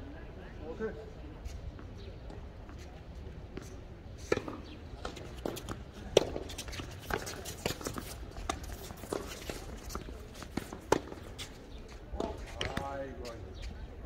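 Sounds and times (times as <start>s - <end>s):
footsteps on court: 1.7s - 13.8s
tennis balls hit by rackets: 3.5s - 11.6s, 12.2s - 13.3s.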